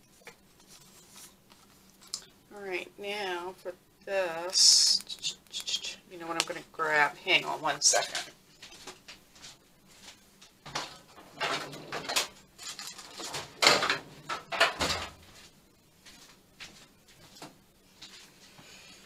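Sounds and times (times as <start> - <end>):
rustling and clattering of supplies: 7.9 - 18.7.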